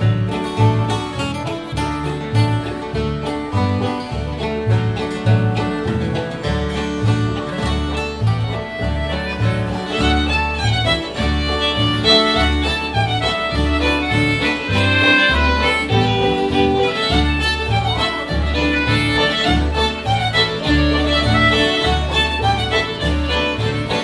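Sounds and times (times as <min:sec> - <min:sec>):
acoustic guitar strumming: 0:00.0 - 0:24.0
bass notes: 0:00.0 - 0:24.0
bowed fiddle lead: 0:00.0 - 0:24.0
concertina playing: 0:07.8 - 0:24.0.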